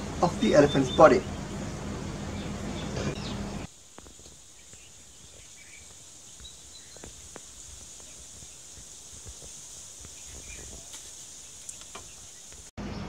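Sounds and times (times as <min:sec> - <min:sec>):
high-pitched insect hiss: 0:03.6 - 0:12.7.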